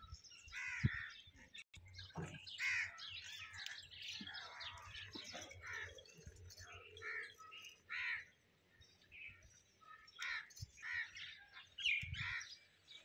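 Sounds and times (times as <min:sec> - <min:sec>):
birds chirping and calling: 0:00.0 - 0:13.0
crows cawing: 0:00.5 - 0:01.2, 0:02.6 - 0:03.6, 0:07.0 - 0:08.4, 0:10.2 - 0:11.3, 0:12.2 - 0:12.5.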